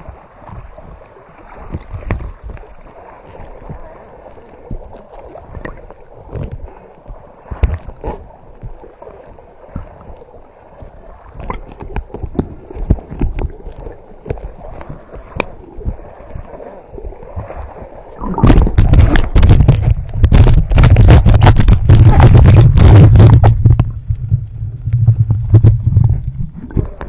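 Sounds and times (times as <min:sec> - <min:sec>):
seawater sloshing and gurgling: 0:00.0 - 0:27.0
small clicks and pops: 0:10.8 - 0:16.0, 0:18.4 - 0:27.0.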